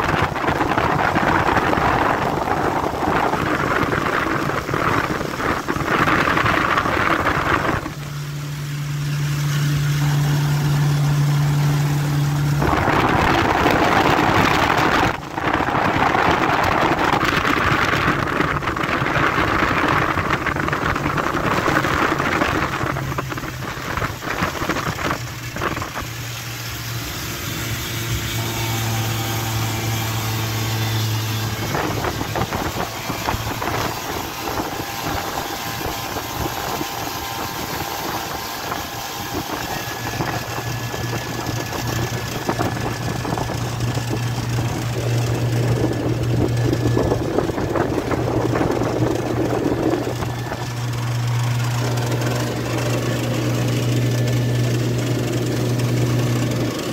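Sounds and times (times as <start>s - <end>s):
motorboat engine humming: 0.0s - 56.9s
water rushing: 0.0s - 56.9s
wind: 0.0s - 56.9s.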